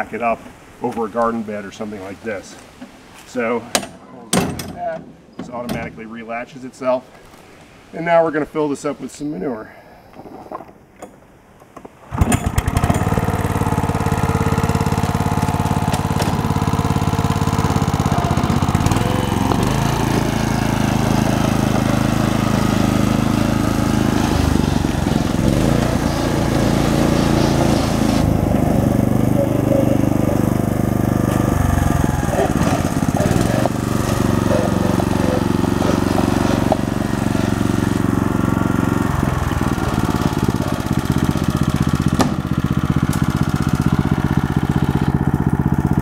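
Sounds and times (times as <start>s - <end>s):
small tractor engine running: 12.1s - 46.0s.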